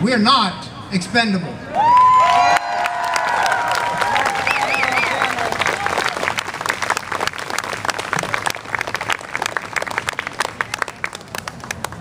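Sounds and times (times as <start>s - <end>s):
audience applauding: 1.8s - 12.0s.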